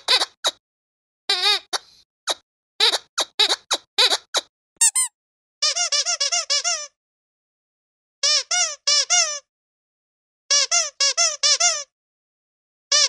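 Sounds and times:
squeaky dog toy squeaking: 0:00.0 - 0:00.6, 0:01.3 - 0:07.0, 0:08.2 - 0:09.5, 0:10.5 - 0:11.9.

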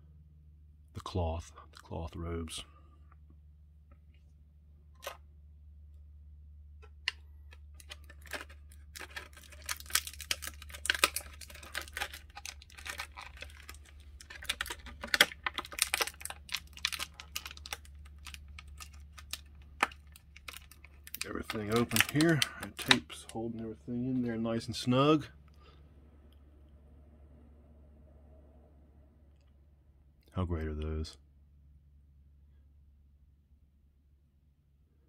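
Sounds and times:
plastic packaging clicks and crackles: 0:06.8 - 0:23.4.

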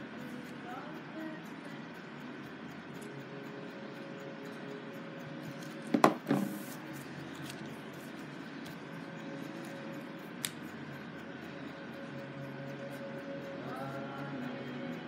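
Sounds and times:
light tick: 0:00.0 - 0:05.9, 0:06.7 - 0:15.0
screwdriver knocking on workbench: 0:05.9 - 0:06.5.

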